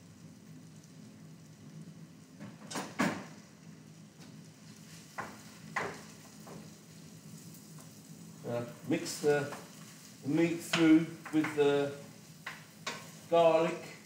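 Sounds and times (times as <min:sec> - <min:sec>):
sharp knocks on pan: 0:05.2 - 0:06.6.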